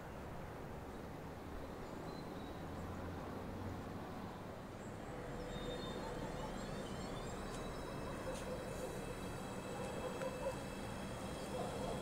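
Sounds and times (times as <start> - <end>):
distant electric train approaching: 4.6 - 12.0
traction motor whines: 5.3 - 12.0.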